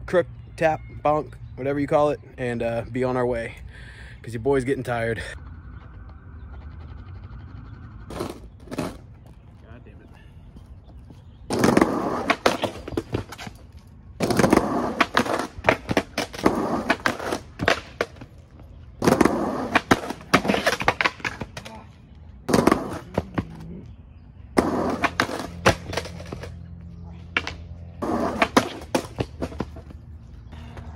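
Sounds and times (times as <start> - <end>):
skateboard wheels rolling on concrete: 4.3 - 30.9
skateboard popping and landing: 11.5 - 13.5, 14.2 - 18.3, 19.0 - 21.8, 22.5 - 23.6, 24.6 - 26.6, 27.4 - 29.9.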